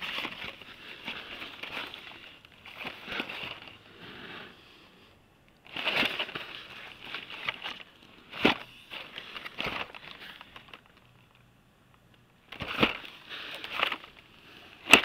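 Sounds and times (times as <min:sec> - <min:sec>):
cards rustling: 0:00.0 - 0:04.2, 0:05.7 - 0:11.4, 0:12.5 - 0:15.0
plastic blister packs clicking: 0:12.0 - 0:15.0.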